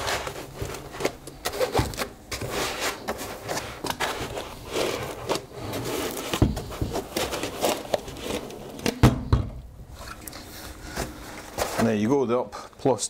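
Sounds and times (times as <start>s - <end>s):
foam scraping against plastic: 0.0s - 8.9s.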